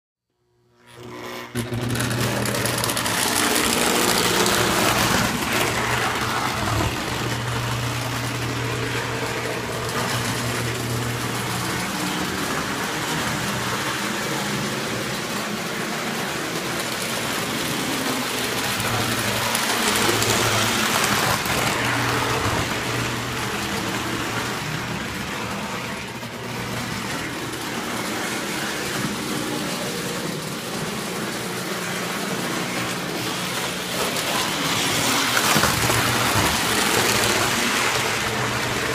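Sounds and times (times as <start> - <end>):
steady electric hum: 0.4 - 38.9
model train wheels clattering: 1.6 - 14.4.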